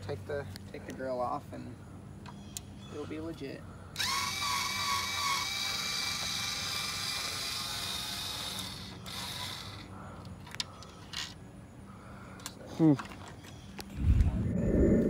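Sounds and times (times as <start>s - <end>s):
cordless drill spinning: 4.0s - 9.9s.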